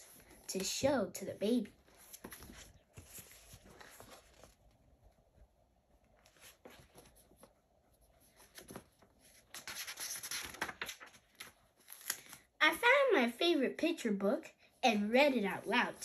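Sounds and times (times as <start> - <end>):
book pages rustling and turning: 0.0 - 12.5.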